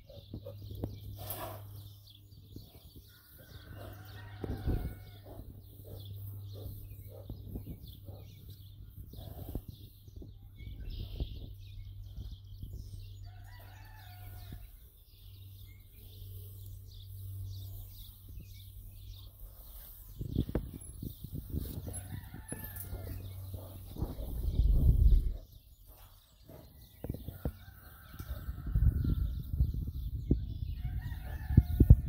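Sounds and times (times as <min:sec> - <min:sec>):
bear rubbing against fence: 0:01.1 - 0:01.8.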